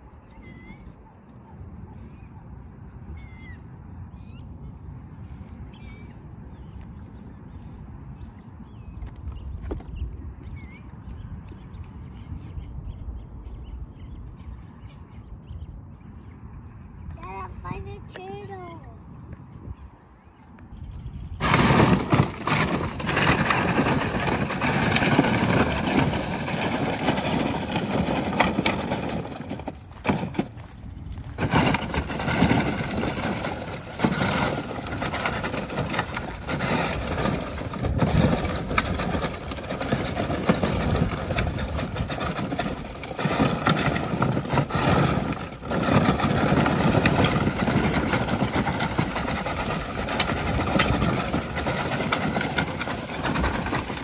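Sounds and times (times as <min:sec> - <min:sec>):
plastic wheels crunching over dirt: 0:08.7 - 0:10.8, 0:20.6 - 0:54.0
toy car electric motors whining: 0:21.3 - 0:54.0.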